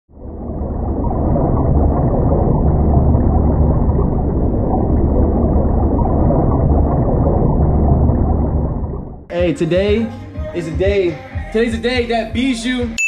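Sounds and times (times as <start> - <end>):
muffled underwater rumble: 0.1 - 9.3.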